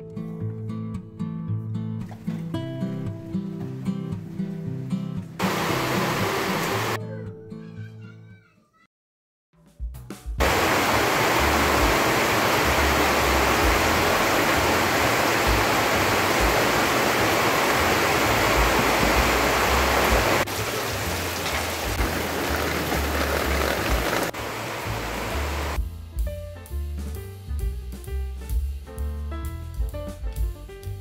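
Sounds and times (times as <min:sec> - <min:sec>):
rush of water: 0:05.4 - 0:07.0, 0:10.4 - 0:25.8.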